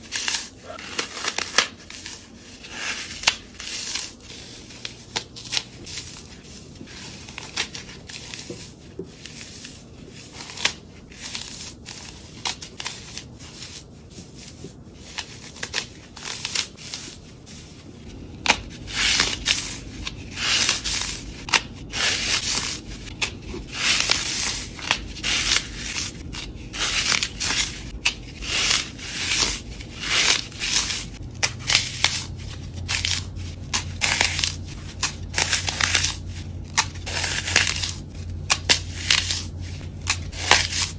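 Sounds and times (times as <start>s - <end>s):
floral foam crunching in hands: 18.1s - 40.9s.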